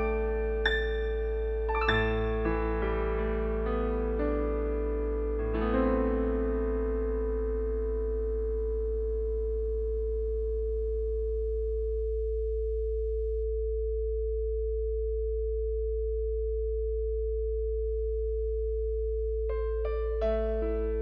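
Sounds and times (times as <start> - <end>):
higher held sine tone: 0.0 - 4.7, 5.5 - 21.0
faint soft music: 0.0 - 11.3, 19.5 - 21.0
low sine tone hum: 0.0 - 21.0.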